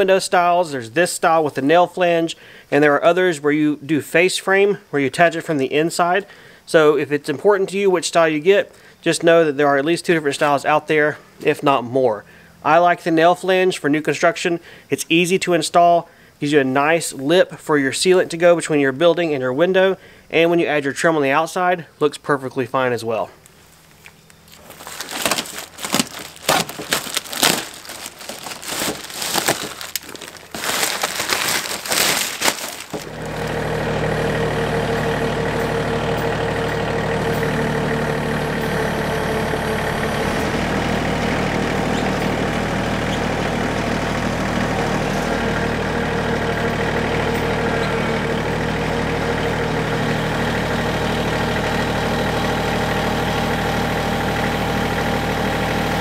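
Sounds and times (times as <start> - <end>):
tractor engine running: 23.4 - 56.0
plastic wrap crinkling: 24.5 - 33.4.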